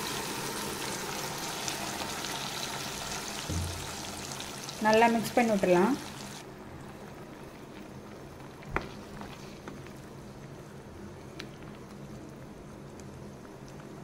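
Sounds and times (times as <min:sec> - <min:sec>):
food bubbling in a pan: 0:00.0 - 0:14.0
low steady hum: 0:03.4 - 0:14.0
sharp knock: 0:03.5 - 0:04.1.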